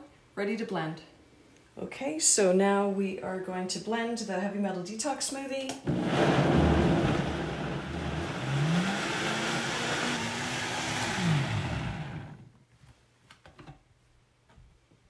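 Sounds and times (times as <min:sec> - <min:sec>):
blender motor running: 0:05.9 - 0:12.5.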